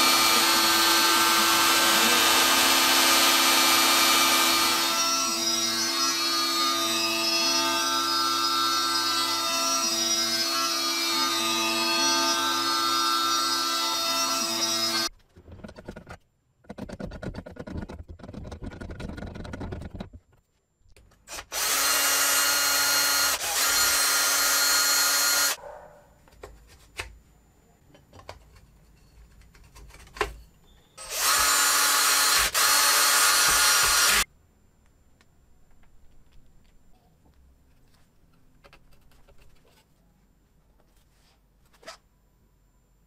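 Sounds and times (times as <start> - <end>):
cordless drill whining: 0.0 - 15.1, 21.3 - 25.6, 31.0 - 34.3
drill bit grinding into metal: 0.0 - 15.1, 31.0 - 34.3.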